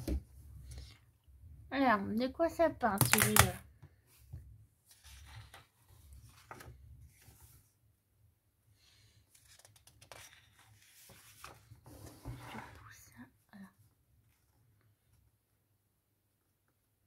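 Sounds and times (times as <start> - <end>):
paper rustling: 4.9 - 7.7, 9.3 - 12.7.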